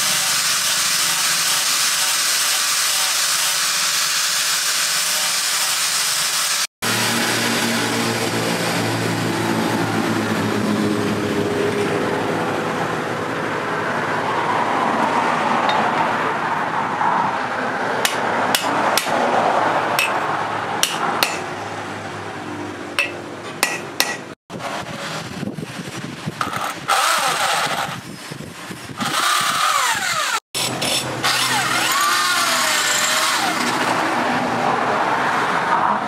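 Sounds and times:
steady machine noise: 0.0s - 10.4s, 26.3s - 34.3s
hammer tapping wood and metal: 18.0s - 19.2s, 20.0s - 20.2s, 20.8s - 21.5s, 23.0s - 24.3s.

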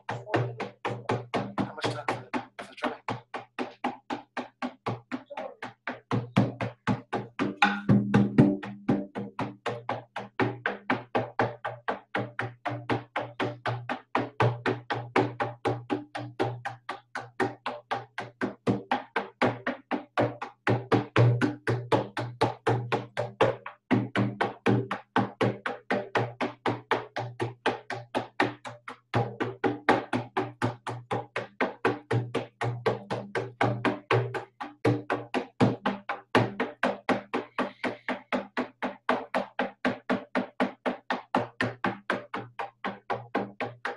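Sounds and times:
frame drum steady fast beat: 0.0s - 14.9s.

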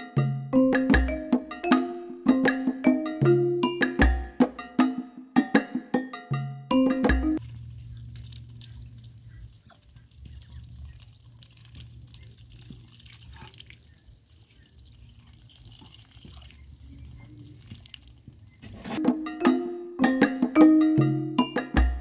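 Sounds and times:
low steady hum: 7.4s - 17.8s
ducks splashing in water: 7.5s - 18.6s.

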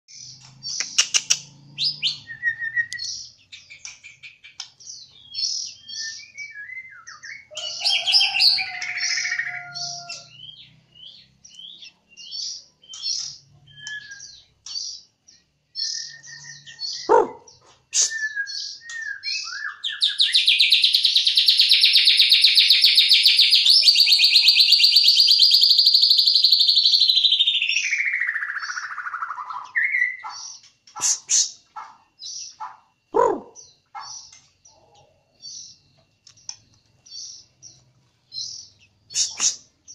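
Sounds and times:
songbird singing whistled phrases: 0.7s - 4.6s, 5.2s - 14.6s, 15.8s - 30.4s.

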